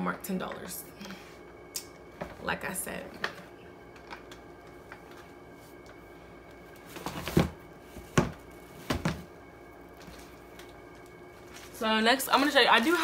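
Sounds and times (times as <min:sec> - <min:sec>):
items knocking: 0:06.9 - 0:09.3.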